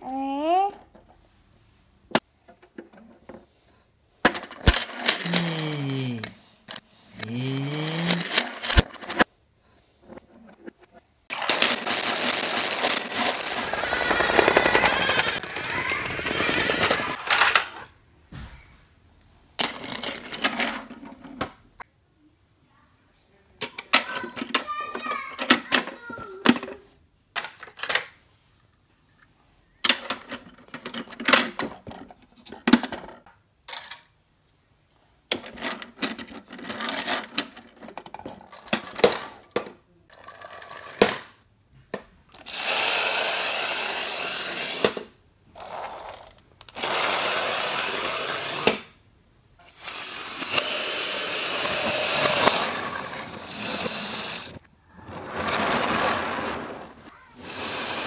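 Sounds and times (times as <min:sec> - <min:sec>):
plastic toys clattering: 0:04.2 - 0:09.3, 0:10.0 - 0:17.9, 0:19.6 - 0:21.6, 0:23.6 - 0:28.2, 0:29.8 - 0:34.2, 0:35.3 - 0:43.0, 0:44.6 - 0:49.0, 0:49.6 - 0:58.0.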